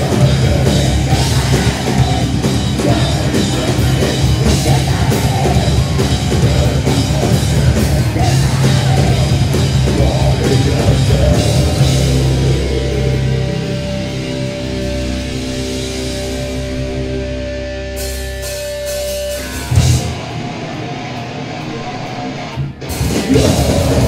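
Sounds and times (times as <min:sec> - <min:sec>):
fast drumming: 0:00.0 - 0:13.0, 0:22.8 - 0:24.0
vocals: 0:00.0 - 0:17.6, 0:19.3 - 0:24.0
bass: 0:00.0 - 0:24.0
distorted guitar: 0:00.0 - 0:24.0.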